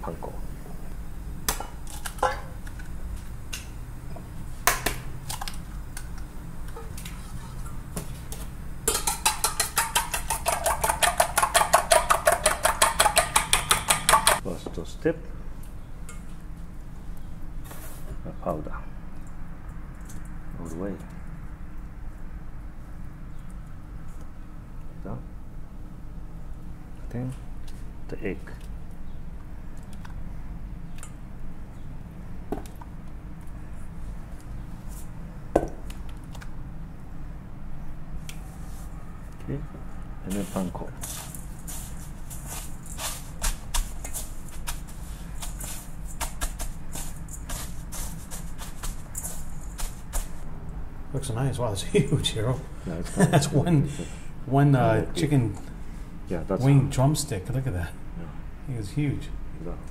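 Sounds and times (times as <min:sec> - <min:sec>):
fork clinking in metal bowl: 0:08.9 - 0:14.4.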